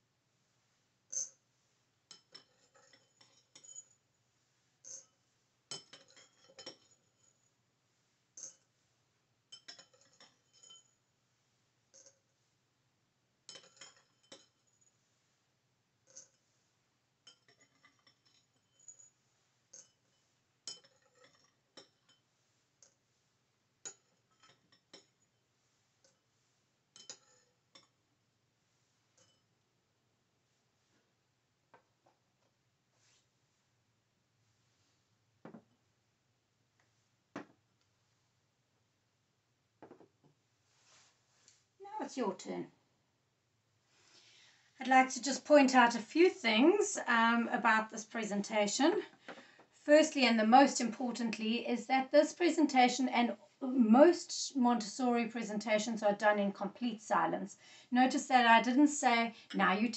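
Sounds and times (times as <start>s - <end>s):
metal spoon clinking ceramic bowls: 5.7s - 7.3s, 9.5s - 11.0s, 13.5s - 14.7s, 17.2s - 18.9s, 20.7s - 22.2s, 23.9s - 25.3s, 27.0s - 28.0s.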